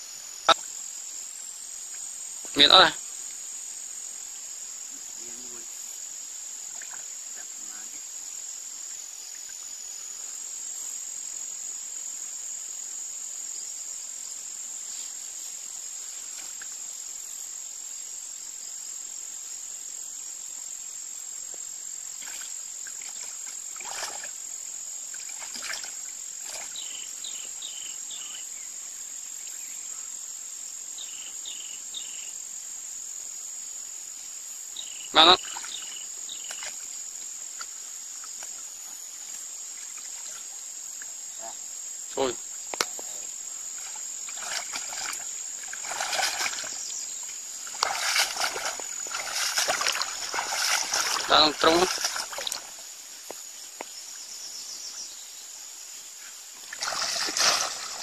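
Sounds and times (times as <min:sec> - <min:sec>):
insects chorus: 0:00.0 - 0:58.0
faint splashes and rustles: 0:06.6 - 0:07.1, 0:14.8 - 0:16.9, 0:22.2 - 0:24.5, 0:25.1 - 0:26.9, 0:35.4 - 0:41.2, 0:43.7 - 0:54.0, 0:56.5 - 0:58.0.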